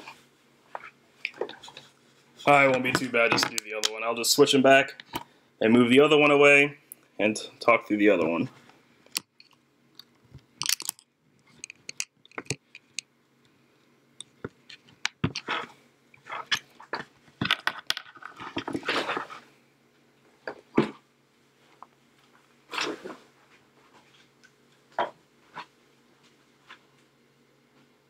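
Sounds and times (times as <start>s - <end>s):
faint steady hum: 0.0s - 28.0s
clicks taps and rattles of electronics parts: 2.7s - 4.0s, 9.1s - 13.1s, 16.5s - 18.8s.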